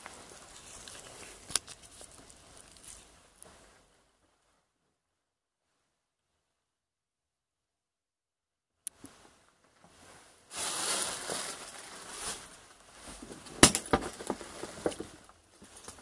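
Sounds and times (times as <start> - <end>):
crunching rustling: 0.0 - 3.7, 10.5 - 16.0.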